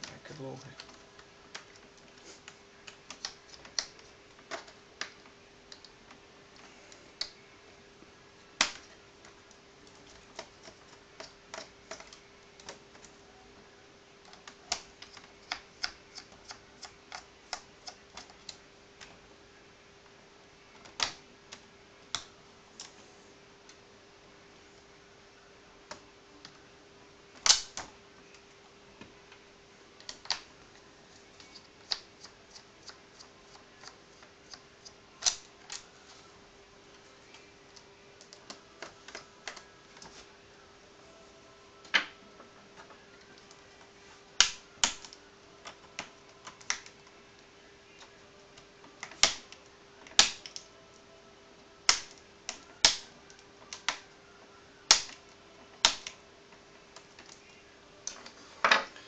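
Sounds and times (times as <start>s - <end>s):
plastic clips clicking and snapping: 27.4s - 27.9s, 35.2s - 35.8s, 44.4s - 47.0s, 49.0s - 50.7s, 51.9s - 53.1s, 54.9s - 55.2s, 55.8s - 56.2s.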